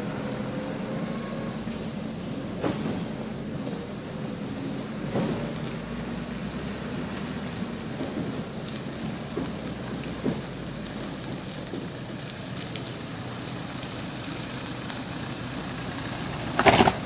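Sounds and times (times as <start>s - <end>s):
low engine hum: 0.0s - 17.0s
tyres on dirt road: 0.0s - 17.0s
faint crackles: 7.9s - 17.0s.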